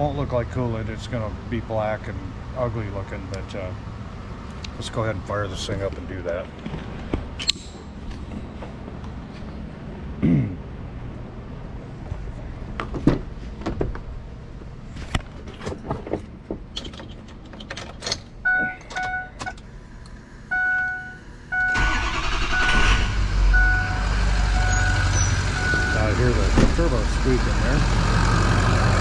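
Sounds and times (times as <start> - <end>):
handling clicks and knocks: 15.0 - 19.6
diesel engine starting and running: 16.8 - 29.0
two-tone chime beeping: 23.6 - 26.0.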